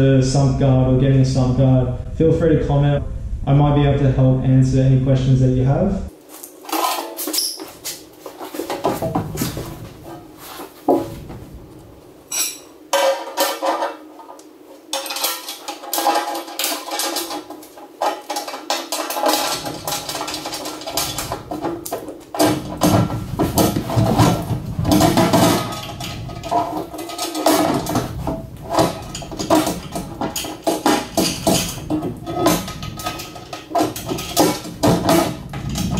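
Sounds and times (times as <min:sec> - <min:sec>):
metal clinks and clanks: 0:12.3 - 0:35.9.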